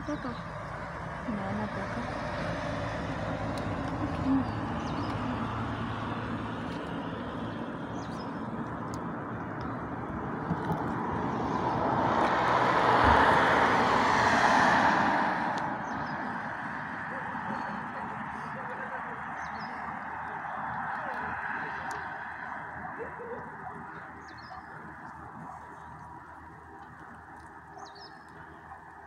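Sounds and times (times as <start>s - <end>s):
background traffic: 0.0s - 29.0s
passing car: 0.0s - 29.0s.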